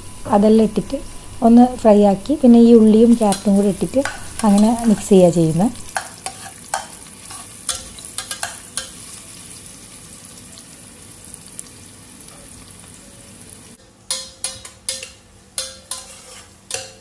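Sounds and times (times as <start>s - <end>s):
onions sizzling in hot oil: 0.0s - 17.0s
metal clinks on steel pot: 14.1s - 16.1s.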